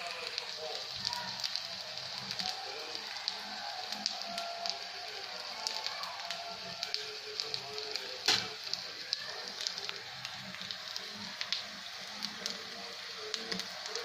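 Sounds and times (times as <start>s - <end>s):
hot oil sizzling in a pan: 0.0s - 14.0s.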